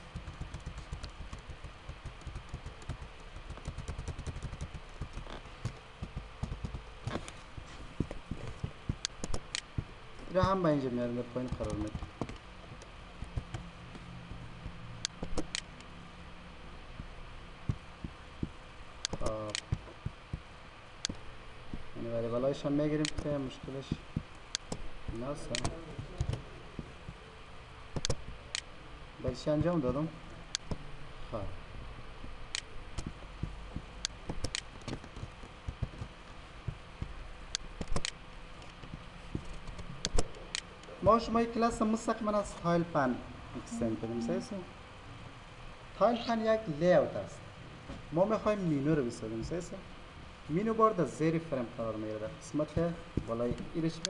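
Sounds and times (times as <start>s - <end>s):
steady low hum: 0.0s - 54.0s
keyboard taps: 0.1s - 7.2s
computer mouse clicks: 0.1s - 7.4s, 8.4s - 9.8s, 15.0s - 15.7s, 19.0s - 19.8s, 23.0s - 23.3s, 25.5s - 26.4s, 28.0s - 28.7s, 34.0s - 36.1s, 37.5s - 40.9s.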